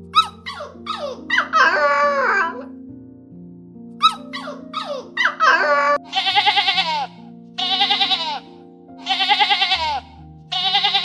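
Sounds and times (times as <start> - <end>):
background music with held notes: 0.0 - 11.0
dog yelping: 0.1 - 2.6, 4.0 - 7.1
wavering bleats: 6.1 - 11.0.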